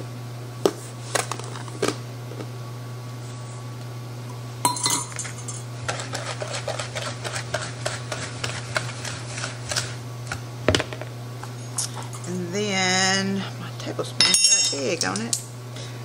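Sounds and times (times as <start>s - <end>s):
whisk scraping mixing bowl: 5.8s - 10.4s.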